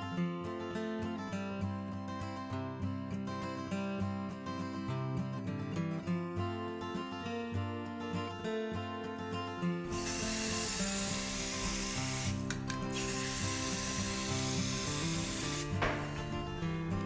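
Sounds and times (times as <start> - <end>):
spray paint can hissing: 9.9 - 16.3.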